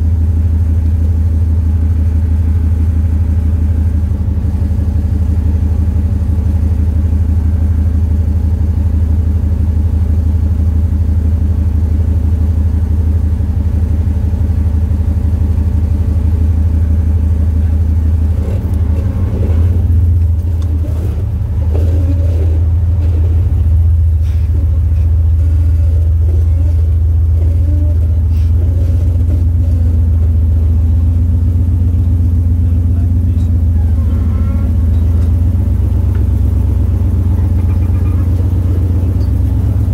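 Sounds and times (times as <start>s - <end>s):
vehicle engine running at low revs: 0.0s - 39.9s
knocks and scrapes: 18.3s - 30.4s.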